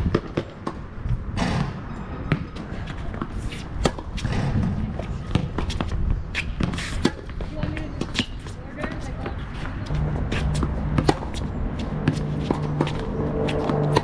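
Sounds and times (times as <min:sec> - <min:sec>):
racket hitting tennis ball: 0:01.4 - 0:14.0
ball bouncing: 0:02.3 - 0:14.0
footsteps and shoe scuffs: 0:05.6 - 0:14.0.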